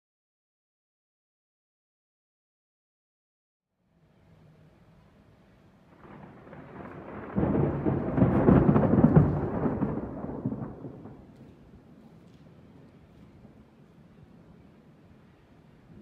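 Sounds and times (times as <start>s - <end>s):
thunder rumbling: 5.9s - 12.0s.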